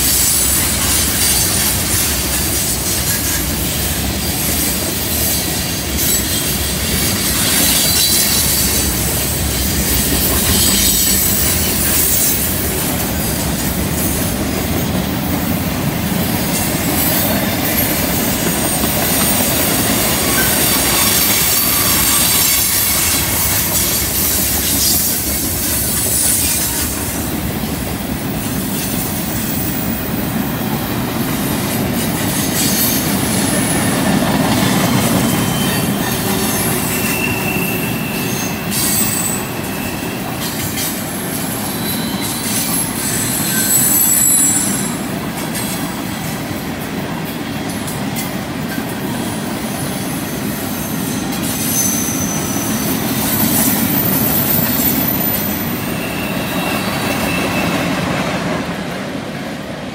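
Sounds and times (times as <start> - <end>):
train wheels clattering on rail: 0.0 - 59.9
wheel flanges squealing: 5.4 - 14.3, 16.6 - 27.2, 32.0 - 45.8, 49.7 - 58.2.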